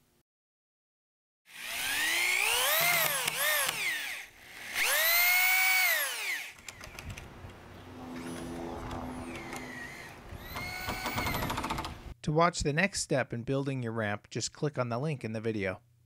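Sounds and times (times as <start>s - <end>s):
drill driving screws into wood: 1.5s - 7.2s, 9.2s - 12.0s
scattered clicks: 6.5s - 7.6s.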